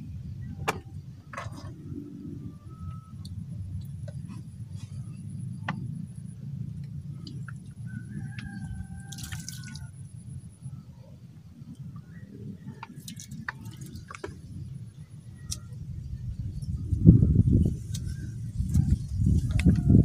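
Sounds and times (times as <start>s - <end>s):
water dripping into pond: 3.2s - 4.2s, 6.7s - 10.7s, 11.7s - 15.7s
low rumble: 9.8s - 20.0s.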